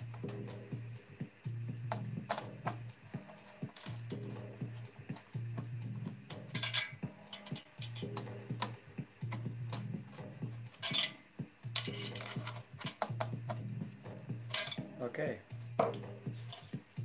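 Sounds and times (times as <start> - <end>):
screwdriver clinking against metal: 3.2 - 4.4, 6.0 - 9.9, 10.6 - 13.6, 14.4 - 14.9.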